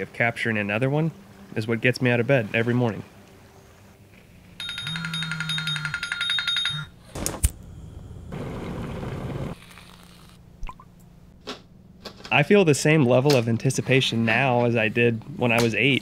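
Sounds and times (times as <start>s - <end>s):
electronic alarm beeping: 4.6s - 6.9s.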